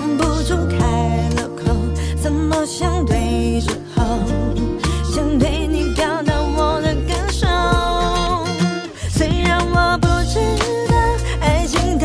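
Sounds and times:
steady beat: 9.2 - 12.0.

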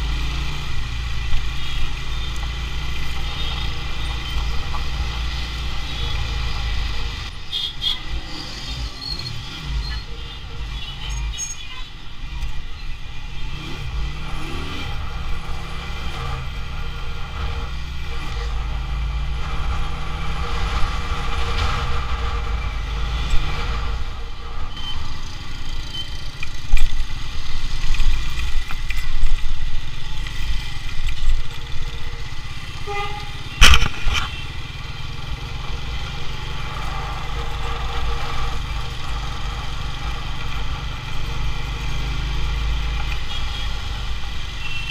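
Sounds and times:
traffic passing: 0.0 - 44.9.

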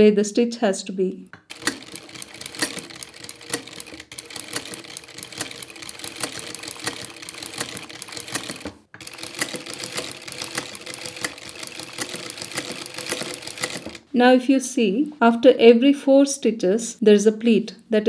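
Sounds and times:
sewing machine clicking: 1.4 - 14.1.

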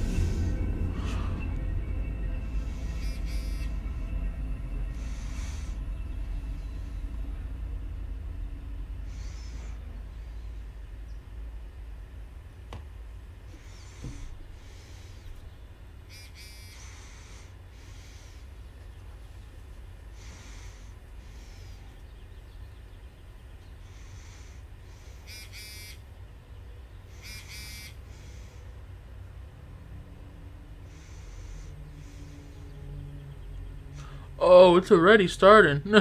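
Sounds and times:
low steady hum: 0.0 - 36.0
person breathing through nose: 4.9 - 5.9, 16.4 - 18.5, 20.1 - 21.9, 23.8 - 25.8, 30.9 - 32.8.

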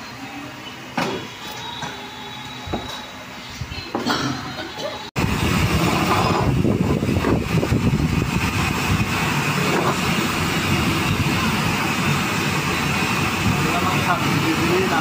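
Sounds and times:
workshop machinery rumbling: 5.2 - 15.0.

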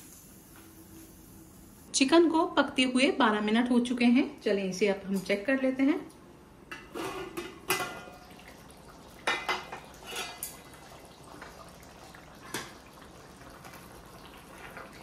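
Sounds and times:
metal pot lid clinking and scraping: 9.3 - 10.6.

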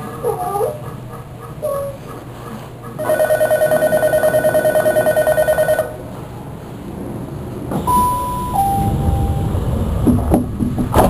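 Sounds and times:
train humming: 0.0 - 11.0
chime tone: 7.9 - 9.6.

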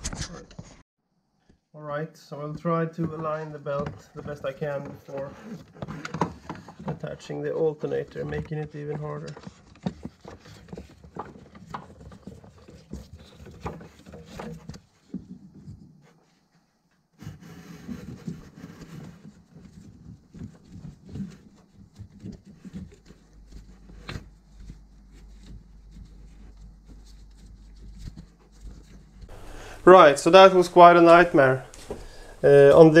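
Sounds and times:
belt rubbing against pulleys: 3.2 - 14.8, 17.2 - 33.0.

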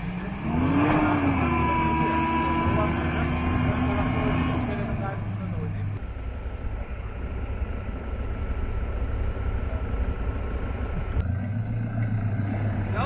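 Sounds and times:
off-road vehicle rumbling: 0.0 - 13.0.

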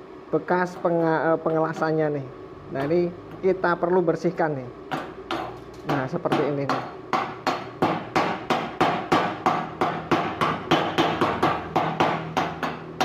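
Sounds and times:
chipping hammer tapping metal: 4.9 - 13.0.

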